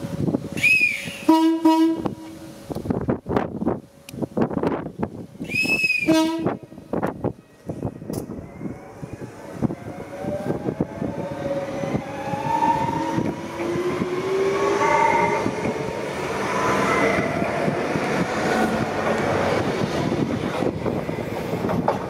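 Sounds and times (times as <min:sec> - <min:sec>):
electric train motors whining: 0:07.0 - 0:21.6
train wheel clatter: 0:17.3 - 0:22.0.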